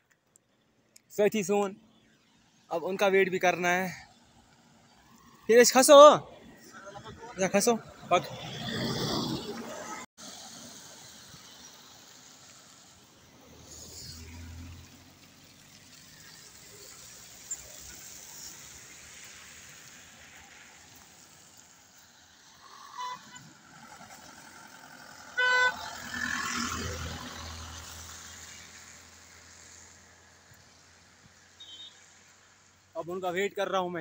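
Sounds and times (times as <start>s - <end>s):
vehicle horn tooting: 22.8s - 23.4s, 25.4s - 25.9s, 31.6s - 32.0s.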